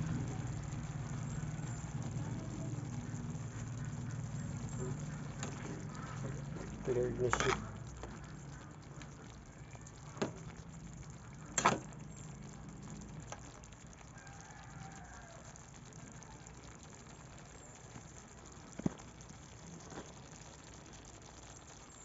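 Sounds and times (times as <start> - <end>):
simmering pan hiss: 0.0 - 22.0
rooster crowing: 14.0 - 16.4.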